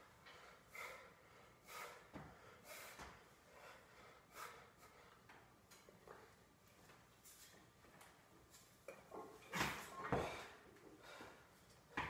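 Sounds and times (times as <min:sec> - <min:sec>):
man breathing with strain: 0:00.1 - 0:05.5, 0:09.4 - 0:12.0.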